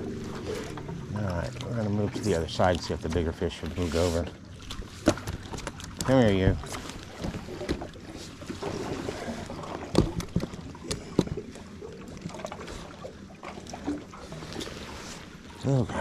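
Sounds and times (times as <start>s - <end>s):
knocks and clicks on boat: 0.0s - 3.8s, 4.6s - 14.7s.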